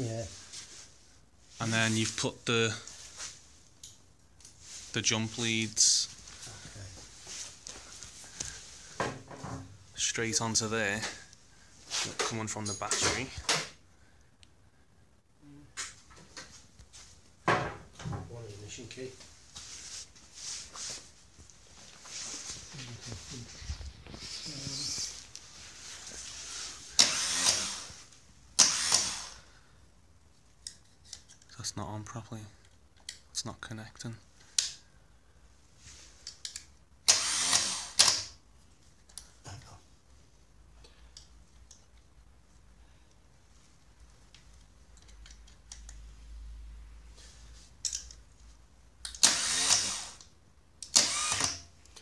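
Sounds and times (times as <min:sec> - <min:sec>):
starter motor cranking: 0:27.0 - 0:27.9, 0:50.9 - 0:51.6.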